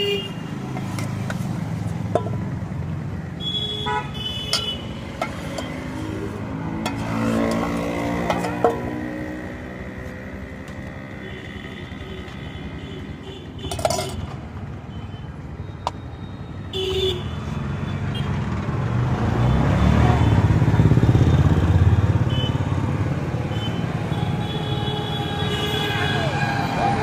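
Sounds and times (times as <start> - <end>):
background traffic rumble: 0.0 - 27.0
vehicle engine passing close: 5.0 - 11.7.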